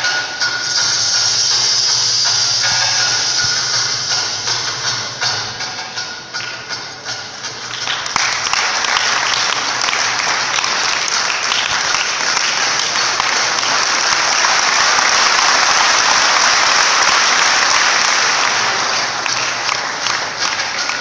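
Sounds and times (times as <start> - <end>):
audience applauding: 7.6 - 21.0.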